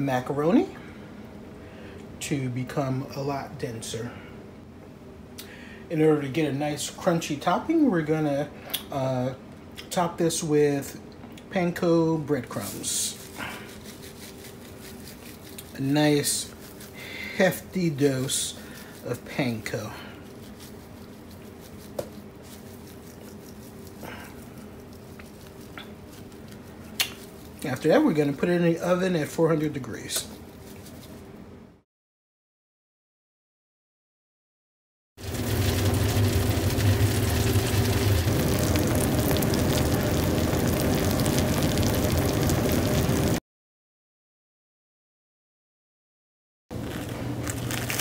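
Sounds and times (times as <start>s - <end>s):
breadcrumbs pattering: 12.4s - 28.4s, 30.1s - 31.3s, 35.2s - 43.0s, 46.8s - 48.0s
food sizzling and crackling: 12.5s - 17.0s, 17.9s - 27.9s, 35.2s - 43.4s, 46.8s - 48.0s
oven humming: 35.2s - 43.4s, 46.8s - 48.0s.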